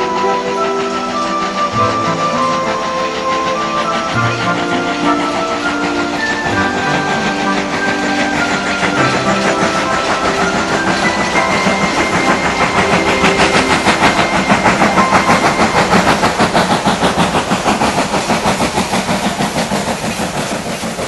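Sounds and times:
steam locomotive chuffing: 0.0 - 21.0.

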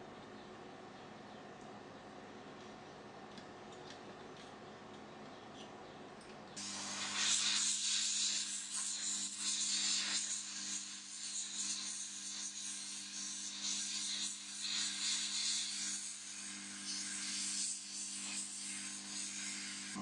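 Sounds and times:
heat gun blowing hot air: 6.6 - 20.0.

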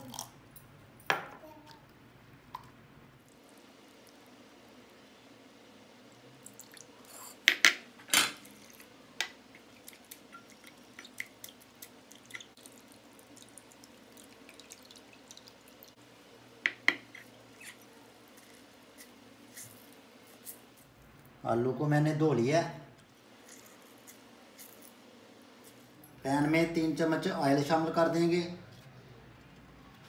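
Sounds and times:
water dripping and trickling: 9.5 - 16.0.

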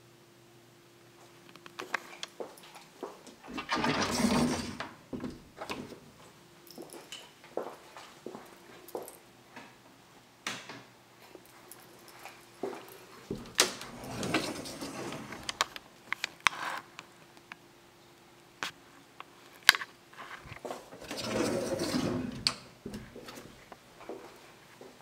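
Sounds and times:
doors rustling: 3.3 - 6.2, 12.7 - 15.8, 20.6 - 24.4.

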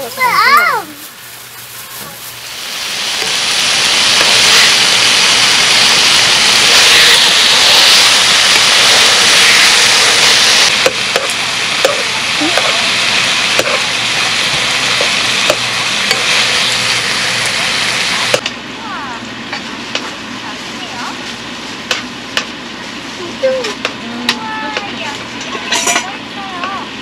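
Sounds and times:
meat sizzling in a pan: 0.1 - 18.5.

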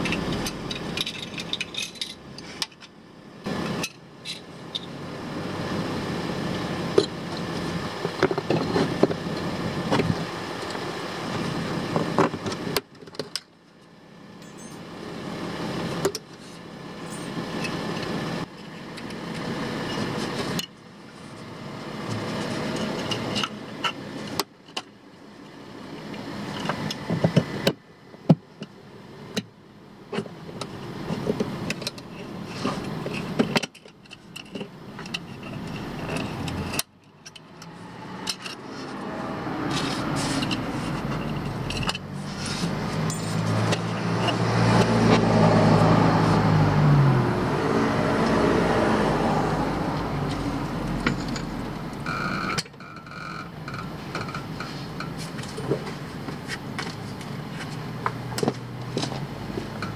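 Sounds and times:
low vehicle engine hum: 0.0 - 59.9
steady background noise: 0.0 - 59.9
light scrapes: 39.6 - 41.6.

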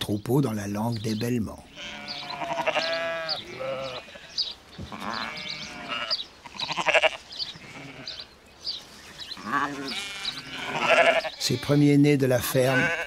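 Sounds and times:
sheep and lambs bleating: 1.6 - 8.4, 9.3 - 13.0.

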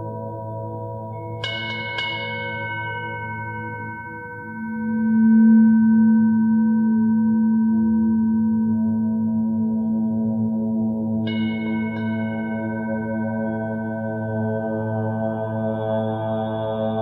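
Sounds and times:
low held tone: 0.9 - 15.4
ringing metal bell strikes: 1.4 - 5.2.

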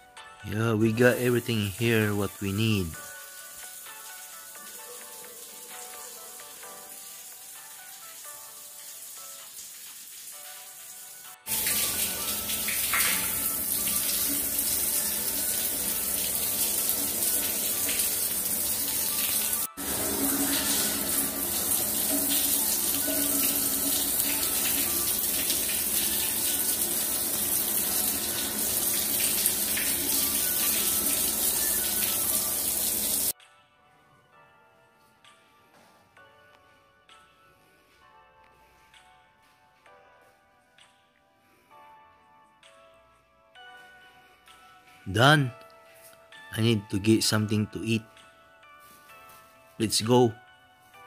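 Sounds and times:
shower head spraying water: 3.0 - 33.3.

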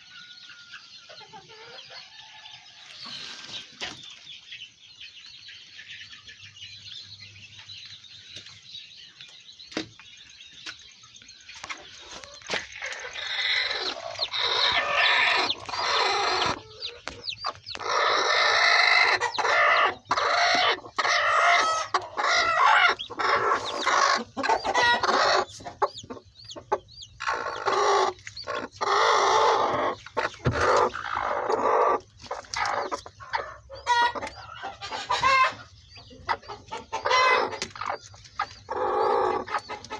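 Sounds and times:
chickens clucking and squawking: 0.0 - 39.9.

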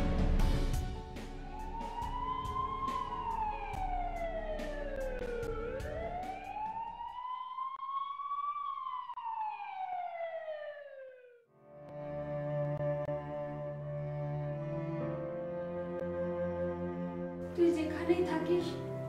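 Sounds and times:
ambulance siren wailing: 1.4 - 11.5.

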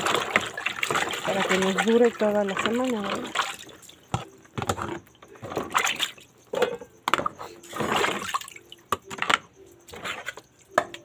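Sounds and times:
water dripping: 0.0 - 4.3
water splashing in tub: 0.0 - 6.3, 7.6 - 8.8.

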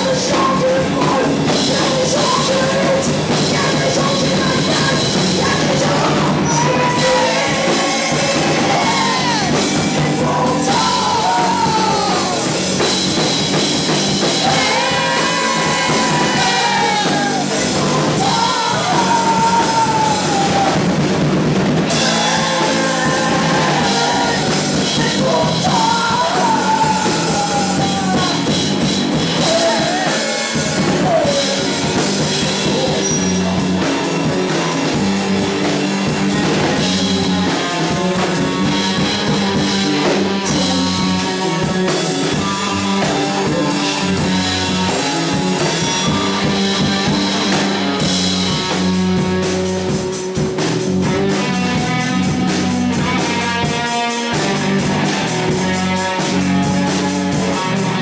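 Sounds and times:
woman singing: 0.0 - 12.4, 14.4 - 20.8, 22.1 - 28.4
rock band playing: 0.0 - 58.0.

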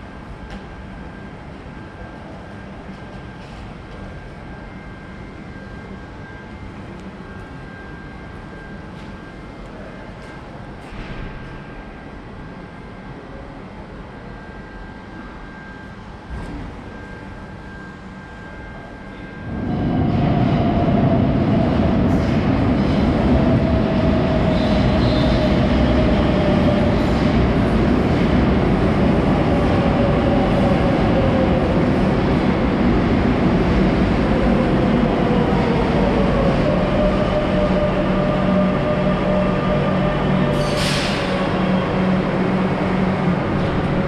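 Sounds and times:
train rumbling on rails: 14.6 - 44.0.

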